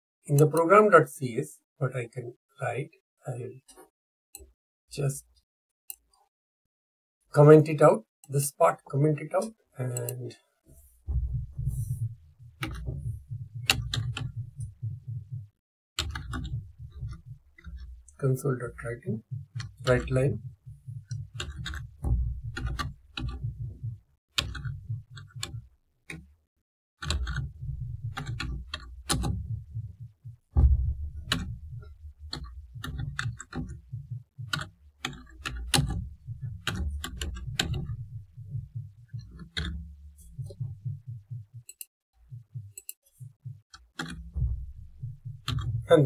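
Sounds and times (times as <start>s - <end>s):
typing on keyboard: 24.4s - 25.6s, 27.0s - 27.5s.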